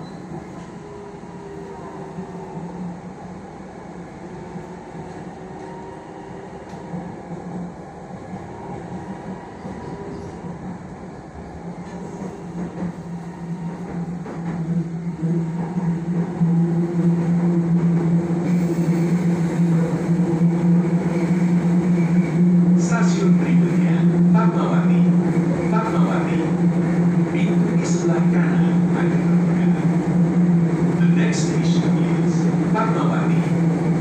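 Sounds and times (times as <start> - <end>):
metro train rumble and hum: 0.0 - 34.0.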